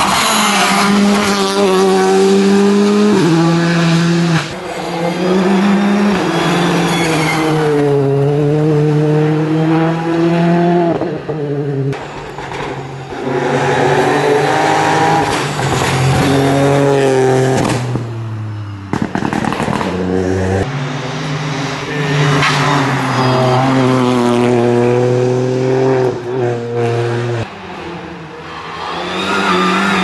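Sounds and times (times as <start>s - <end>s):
car engine revving: 0.0s - 12.0s, 13.1s - 30.0s
exhaust crackling and popping: 18.9s - 20.0s.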